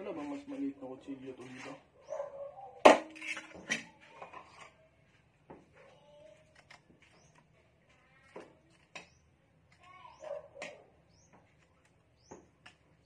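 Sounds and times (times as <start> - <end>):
knives and utensils clattering: 2.9 - 4.8.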